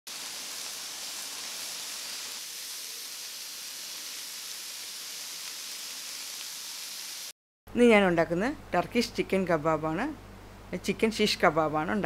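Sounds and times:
meat sizzling in a grill pan: 0:00.1 - 0:07.3.

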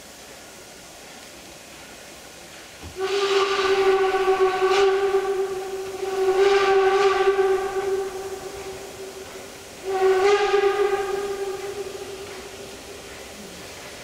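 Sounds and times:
steam locomotive whistle blast: 0:02.9 - 0:14.0.

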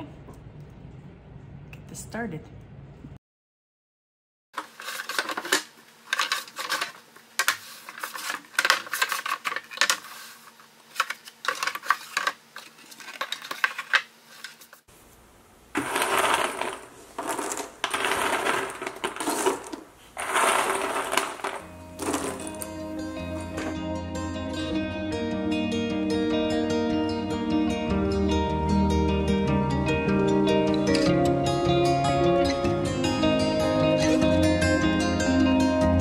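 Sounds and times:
puzzle pieces clicking: 0:15.8 - 0:22.8
puzzle pieces pouring out: 0:15.8 - 0:23.8.

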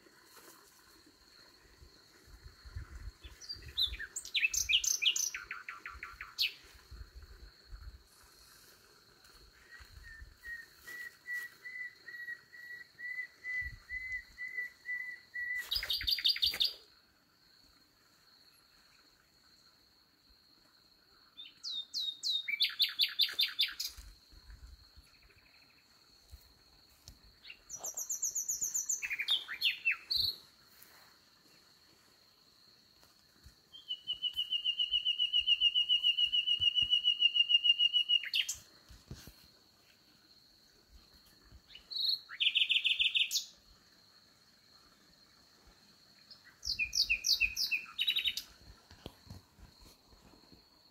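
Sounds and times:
nightingale singing: 0:02.6 - 0:06.8, 0:09.5 - 0:16.9, 0:21.4 - 0:24.1, 0:27.4 - 0:30.5, 0:33.7 - 0:38.7, 0:41.6 - 0:43.6, 0:46.2 - 0:49.4.

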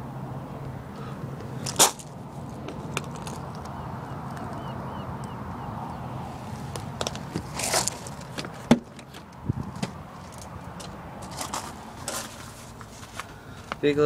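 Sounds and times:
handling clicks and knocks: 0:06.7 - 0:12.3.

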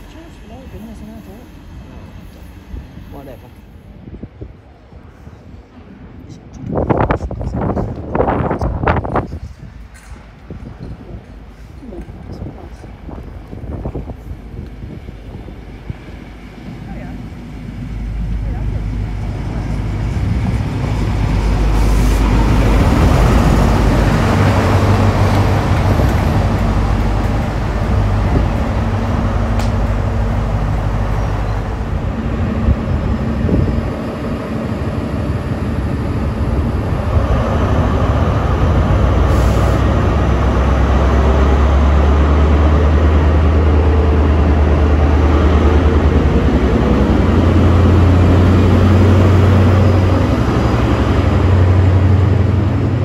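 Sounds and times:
diesel train engines running: 0:00.0 - 0:53.0
deep steady engine hum: 0:11.0 - 0:53.0.

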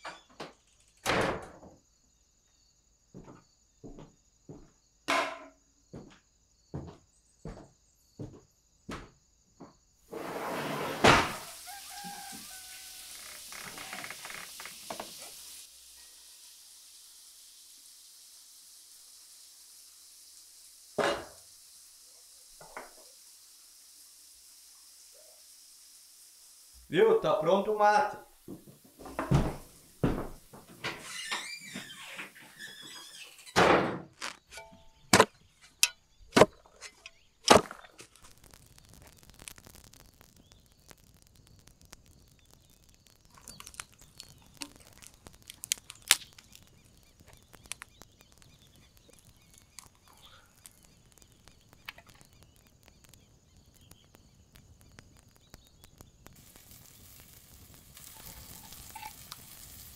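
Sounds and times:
hot water pouring hiss: 0:10.0 - 0:33.6, 0:34.2 - 0:59.9
hand tool striking hard ground: 0:34.2 - 0:38.2.

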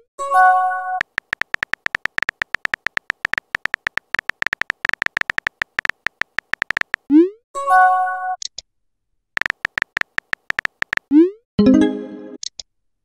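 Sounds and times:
phone keyboard key-press blips: 0:01.0 - 0:07.1, 0:09.4 - 0:11.1.

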